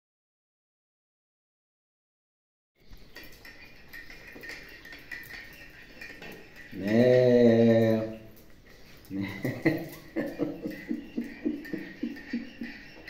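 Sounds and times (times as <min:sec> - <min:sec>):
dog claws clicking on tile: 0:02.9 - 0:13.0
man humming: 0:06.7 - 0:08.3.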